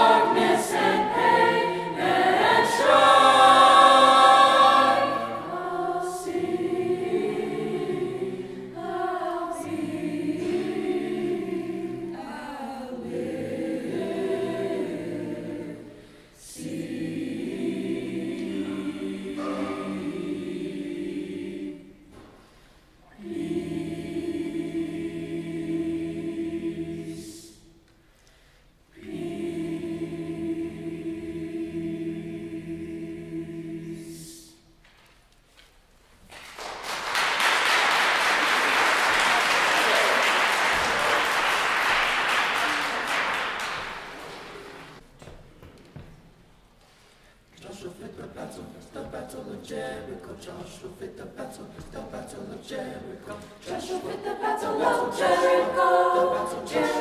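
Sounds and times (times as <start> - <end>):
choir singing unaccompanied: 0.0 - 22.2, 23.1 - 27.8, 28.9 - 34.7, 47.6 - 57.0
singers breathing: 15.9 - 16.4, 22.3 - 23.2, 27.9 - 28.9, 46.8 - 47.5.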